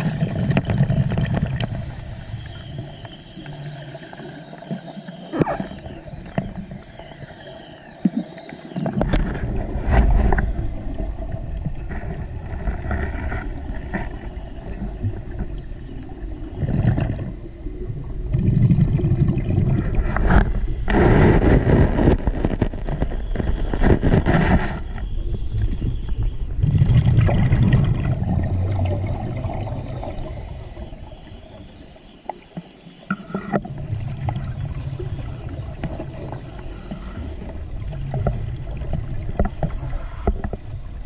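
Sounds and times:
gurgling exhaust bubbles underwater: 0.0s - 41.0s.

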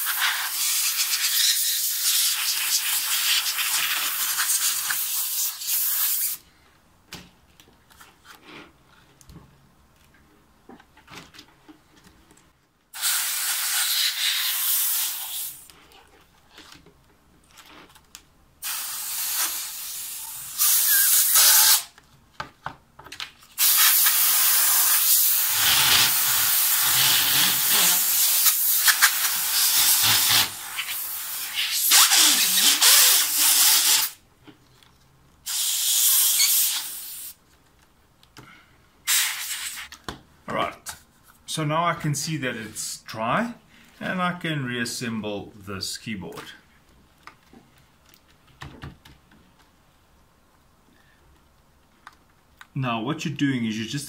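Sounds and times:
compressed air hissing: 0.0s - 6.5s, 12.9s - 15.7s, 18.6s - 21.9s, 23.6s - 34.2s, 35.4s - 37.4s, 39.0s - 39.9s.

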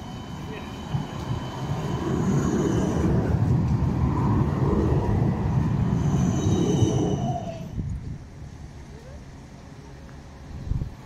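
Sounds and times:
faint high squeal: 0.0s - 3.4s, 5.6s - 7.8s
tram rumbling on rails: 0.0s - 11.0s.

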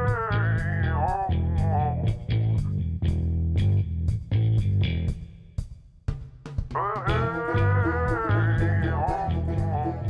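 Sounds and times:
electric guitar with bass and beat: 0.0s - 5.4s, 7.1s - 10.0s.

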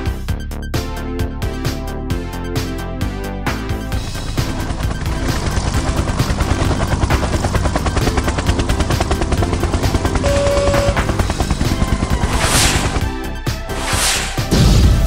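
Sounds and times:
background music: 0.0s - 15.0s
cartoon helicopter rattle: 4.0s - 13.2s
whoosh: 12.3s - 15.0s.

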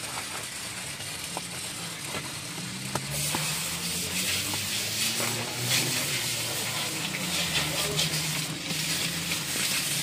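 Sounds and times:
hand scrubbing soap foam on rubber: 2.2s - 10.0s.

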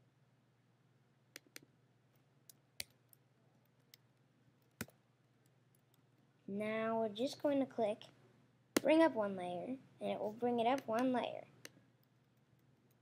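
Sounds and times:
computer mouse clicks: 1.3s - 1.7s.

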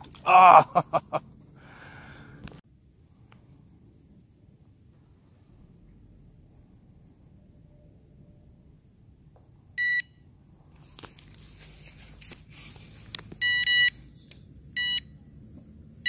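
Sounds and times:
fishing rod rustling and clicks: 10.8s - 13.5s
bite alarm beeping: 13.4s - 14.0s, 14.8s - 15.1s.

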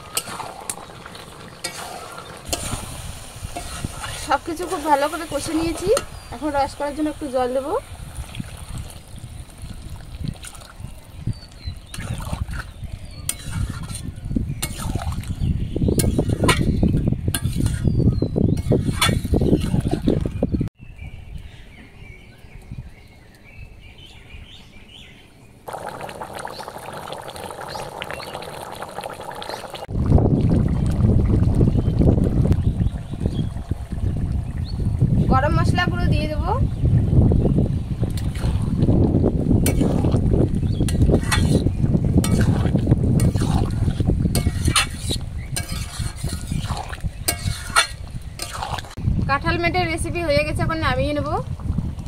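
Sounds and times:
metal spatula scraping a pan: 0.0s - 6.3s, 13.3s - 15.0s, 16.0s - 19.9s, 39.6s - 40.1s, 40.9s - 49.0s
gravy boiling and bubbling: 0.0s - 20.7s, 25.7s - 49.3s, 51.0s - 52.0s
wind rumble on microphone: 2.4s - 24.6s, 29.0s - 52.0s
birds chirping faintly: 14.1s - 29.9s
curry simmering in a pan: 25.7s - 35.0s, 39.6s - 49.0s
low rumble: 29.9s - 44.5s.

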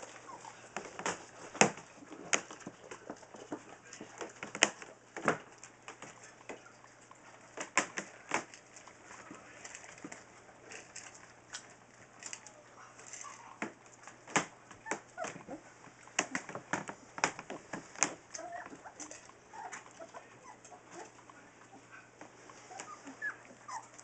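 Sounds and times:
puppies squeaking and whimpering: 0.0s - 0.8s, 14.8s - 15.8s, 18.2s - 24.0s.

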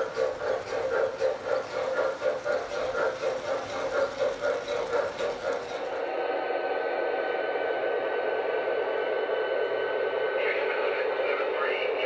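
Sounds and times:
model train wheel clatter: 0.0s - 6.0s
steady hum with high tone: 0.0s - 12.0s.

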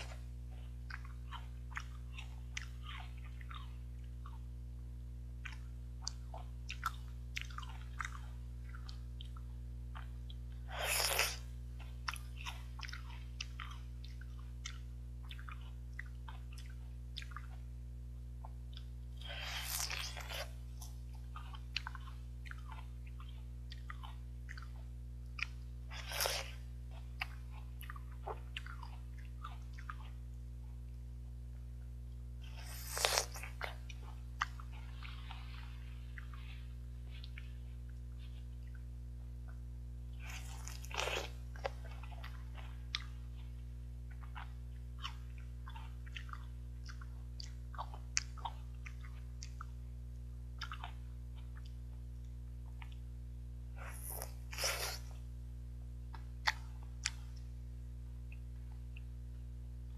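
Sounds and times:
wet chewing clicks: 0.0s - 4.5s, 40.3s - 49.8s
crunchy fruit bites: 0.0s - 30.4s, 32.1s - 38.0s, 38.6s - 53.1s, 53.8s - 55.2s
steady low hum: 0.0s - 59.9s.

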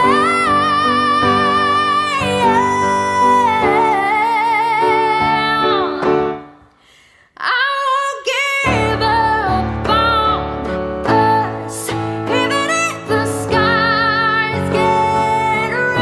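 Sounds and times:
woman singing with vibrato: 0.0s - 6.6s, 7.3s - 16.0s.

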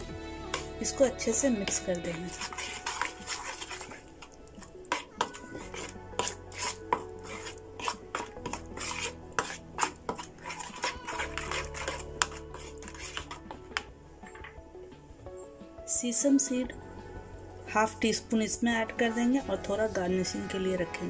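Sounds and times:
spoon scraping plastic bowl: 0.4s - 14.6s.

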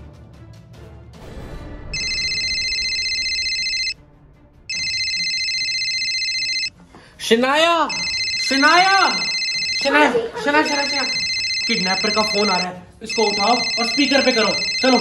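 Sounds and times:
smartphone ringing: 2.0s - 4.0s, 4.7s - 6.8s, 7.9s - 15.0s.

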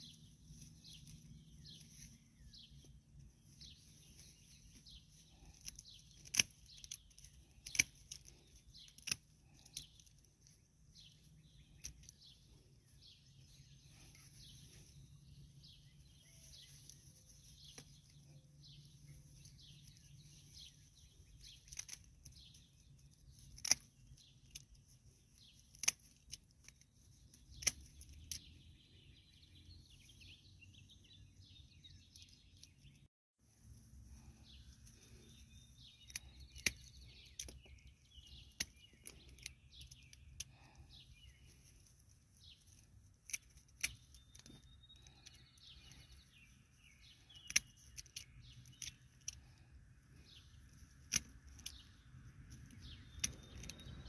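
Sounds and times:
small birds chirping: 0.0s - 54.0s
garden scissors snipping stems: 3.6s - 12.5s, 16.1s - 28.5s, 34.1s - 46.3s, 47.2s - 54.0s.

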